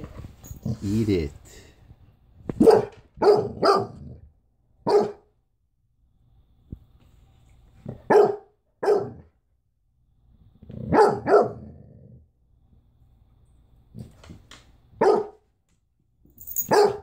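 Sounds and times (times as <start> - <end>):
puppy barking deep woofs: 2.6 - 4.2, 4.8 - 5.3, 7.9 - 9.3, 10.8 - 12.2, 15.0 - 15.4, 16.6 - 17.0.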